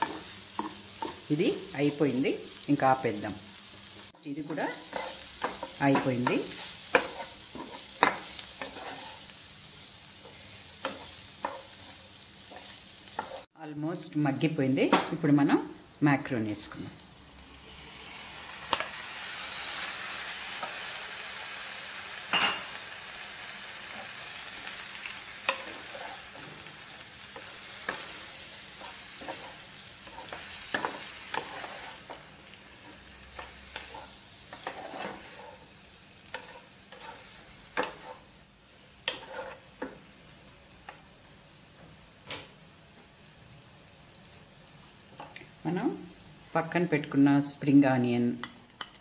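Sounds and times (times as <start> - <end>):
spatula knocking and scraping pan: 0.0 - 1.3, 4.5 - 9.3, 10.2 - 11.9, 12.5 - 13.5, 27.4 - 32.2, 32.8 - 35.7, 36.3 - 38.2, 39.0 - 40.0
food sizzling in hot oil: 0.0 - 49.0.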